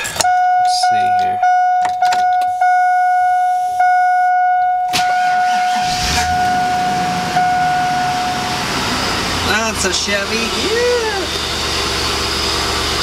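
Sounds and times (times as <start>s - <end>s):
warning chime dinging: 0.2s - 9.8s
car engine running: 5.2s - 13.0s.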